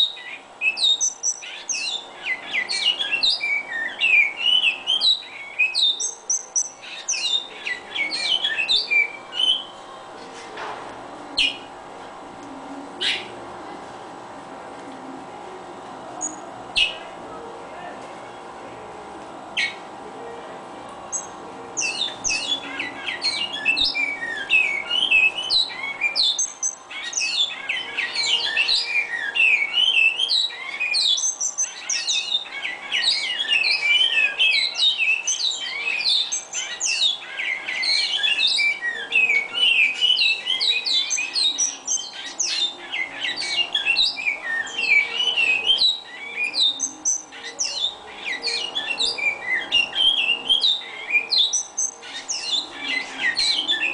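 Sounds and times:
finch singing: 0:00.0 - 0:09.8, 0:13.0 - 0:13.4, 0:21.0 - 0:53.9.

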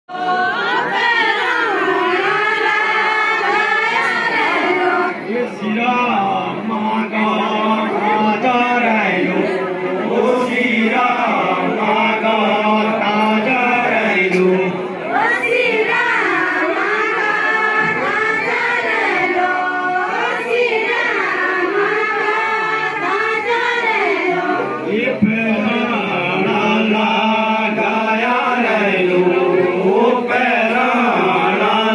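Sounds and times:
voices singing folk song in chorus: 0:00.1 - 0:31.9.

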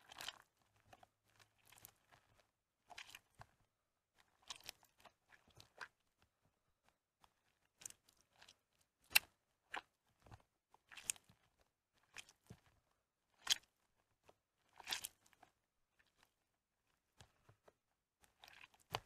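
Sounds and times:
wet soap squelching: 0:00.0 - 0:19.0.

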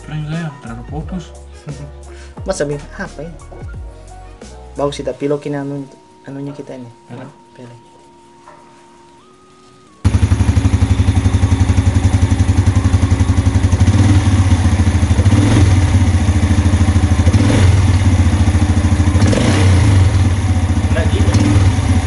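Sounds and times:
motorcycle engine idling: 0:10.0 - 0:22.0.

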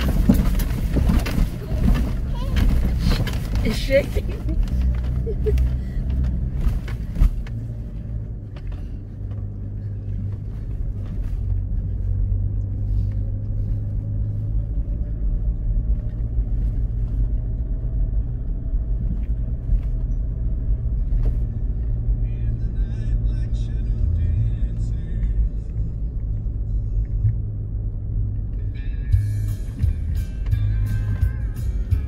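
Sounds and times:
knocks and rattles: 0:00.0 - 0:09.6
vehicle engine and tyres rumbling: 0:00.0 - 0:32.0.

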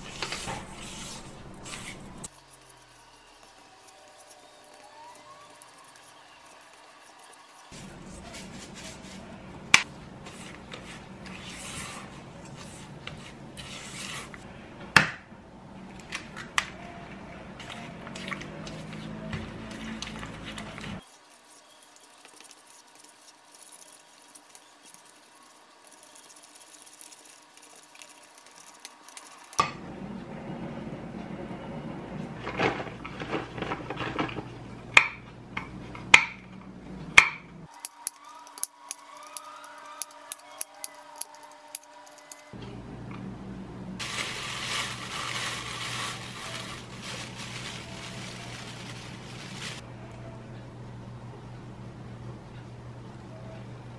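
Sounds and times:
flour shaken through sieve: 0:00.0 - 0:09.3, 0:18.2 - 0:29.6, 0:44.0 - 0:49.8.

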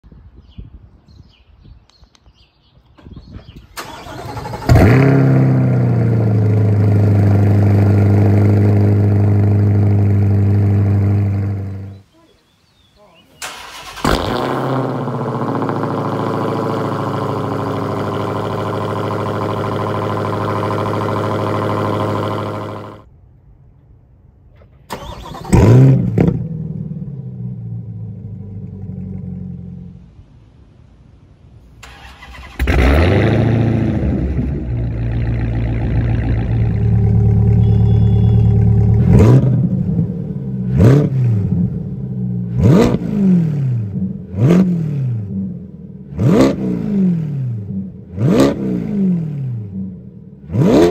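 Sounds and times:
car engine cranking: 0:03.6 - 0:05.5, 0:13.4 - 0:16.1, 0:24.9 - 0:26.4, 0:31.8 - 0:33.4
car engine revving then idling: 0:03.8 - 0:12.0, 0:13.4 - 0:23.1, 0:31.8 - 0:50.9.

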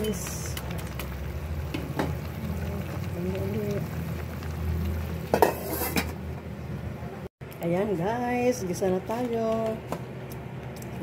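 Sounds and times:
pot simmering: 0:00.0 - 0:06.8.

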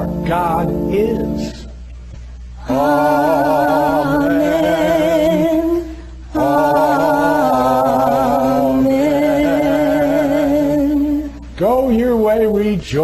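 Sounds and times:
voice singing with vibrato: 0:02.6 - 0:12.2.

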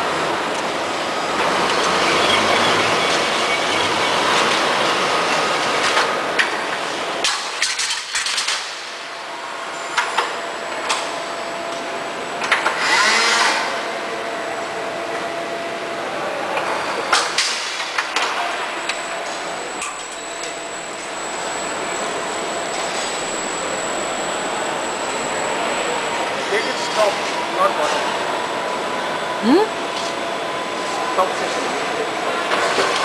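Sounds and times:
conveyor machinery running: 0:00.0 - 0:33.0
machine clanks and clicks: 0:07.2 - 0:08.8.

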